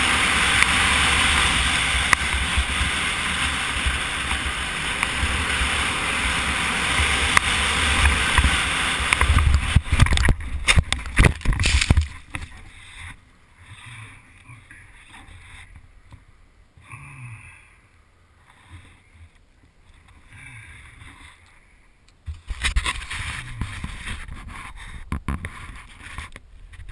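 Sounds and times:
wind rush on microphone: 0.0s - 12.8s
atv engine at speed: 0.0s - 14.4s.

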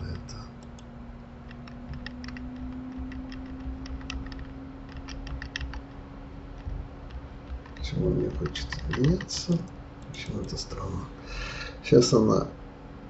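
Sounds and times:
steady low hum: 0.0s - 13.0s
keyboard keys clicking: 1.5s - 6.0s, 6.6s - 10.6s.

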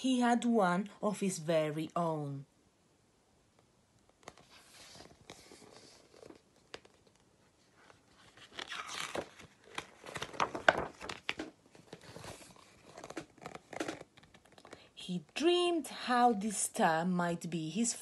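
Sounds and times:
paper pages rustling: 4.1s - 14.9s.

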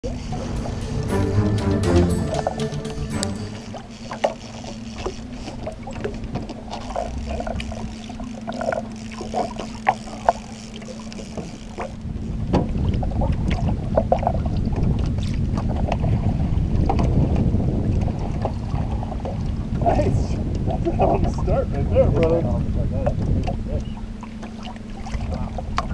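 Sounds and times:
boat motor humming: 0.0s - 13.5s
wind rumble on microphone: 12.0s - 24.2s, 25.0s - 25.9s.

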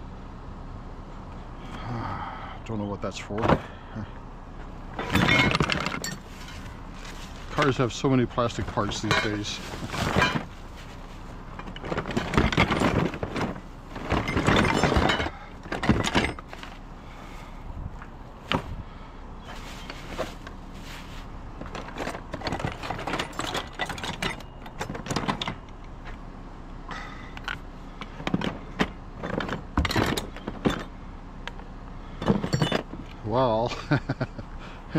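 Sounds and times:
metal and plastic parts clattering: 4.9s - 16.9s, 19.4s - 26.2s, 27.3s - 30.9s, 32.2s - 33.2s.

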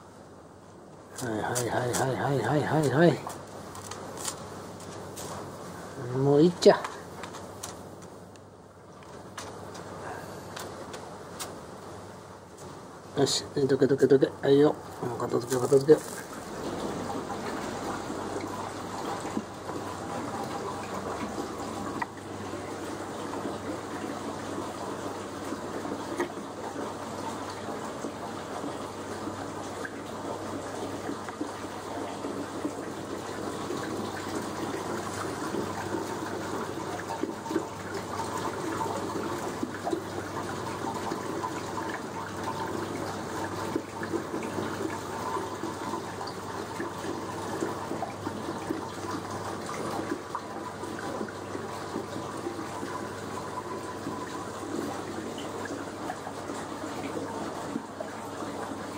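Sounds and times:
running water: 0.0s - 58.9s.

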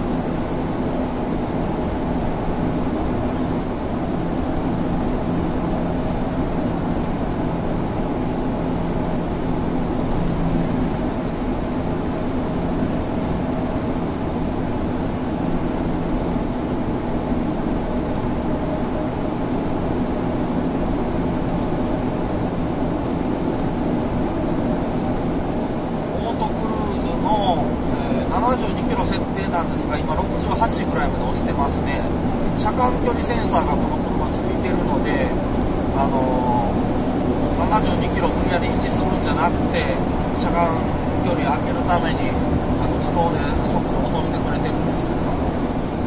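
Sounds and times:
low engine hum: 0.0s - 46.0s
road and tyre noise: 0.0s - 46.0s.

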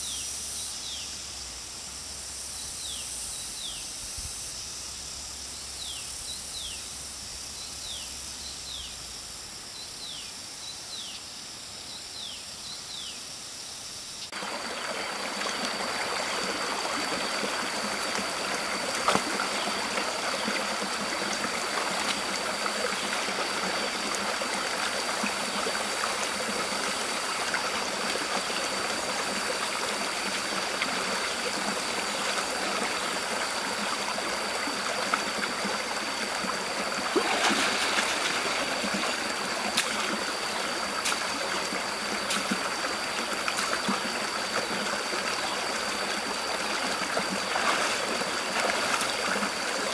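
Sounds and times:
water rushing over rocks: 14.4s - 49.9s.

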